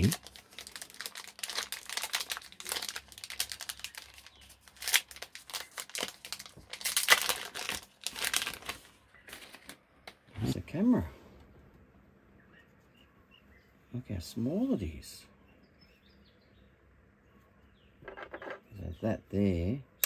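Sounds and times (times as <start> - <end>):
plastic bag crinkling: 0.0 - 9.8.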